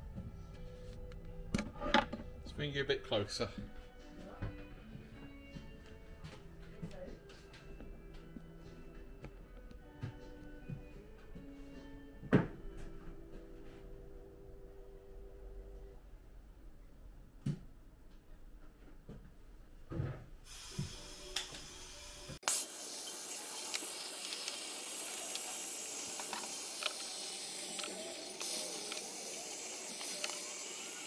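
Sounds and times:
blowtorch hissing: 0:20.5 - 0:31.0.

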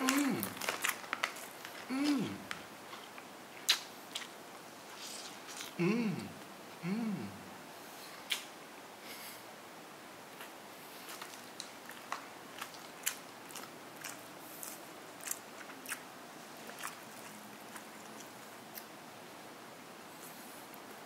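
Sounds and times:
crispy batter crunching: 0:00.0 - 0:04.3, 0:10.4 - 0:16.0.

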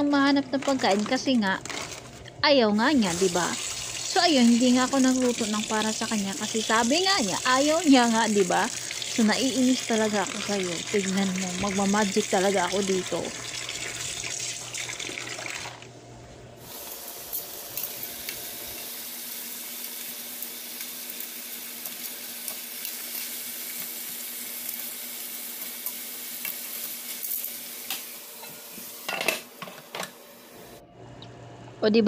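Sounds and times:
chicken sizzling in a frying pan: 0:02.9 - 0:14.7, 0:16.6 - 0:29.2.

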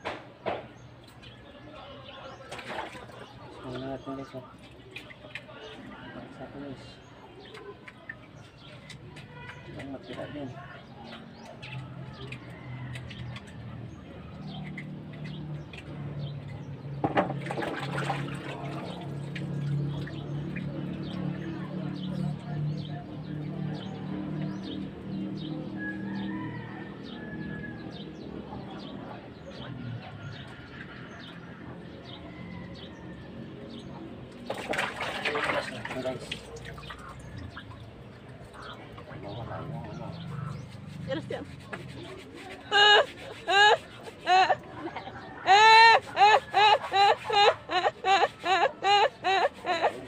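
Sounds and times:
water sloshing in plastic basin: 0:00.3 - 0:22.4, 0:33.7 - 0:44.7
fish splashing in water: 0:02.3 - 0:03.8, 0:17.2 - 0:21.4, 0:34.4 - 0:39.2.

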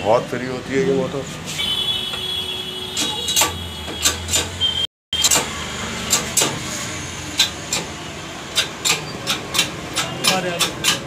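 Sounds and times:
sharp metal clicks and taps: 0:05.2 - 0:05.5, 0:06.1 - 0:06.6, 0:07.3 - 0:11.0.

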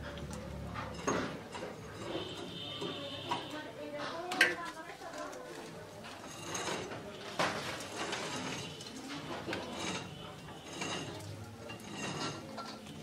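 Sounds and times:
steel bowl clinking: 0:00.0 - 0:03.7, 0:07.8 - 0:13.0.

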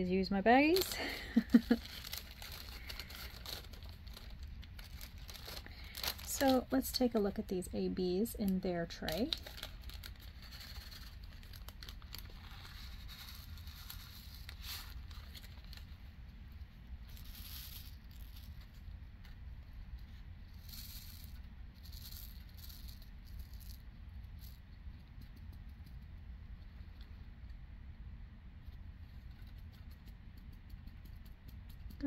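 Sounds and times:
beads rattling in plastic tray: 0:00.6 - 0:07.3, 0:08.8 - 0:15.6, 0:17.1 - 0:18.6, 0:20.6 - 0:23.8.

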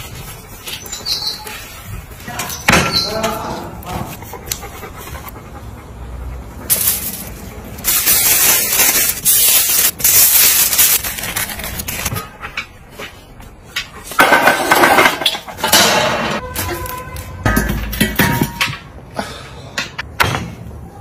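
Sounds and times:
aluminium foil crinkling: 0:06.7 - 0:12.2.

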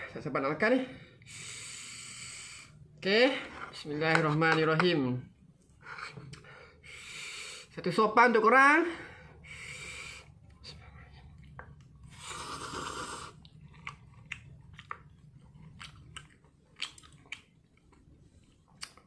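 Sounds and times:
person slurping noodles: 0:12.0 - 0:14.0
wet chewing smacks: 0:13.3 - 0:19.0.

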